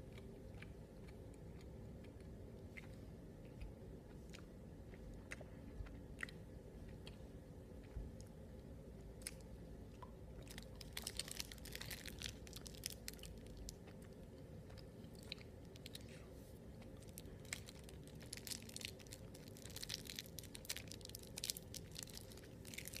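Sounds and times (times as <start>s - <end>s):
candy crunching while chewed: 10.4s - 23.0s.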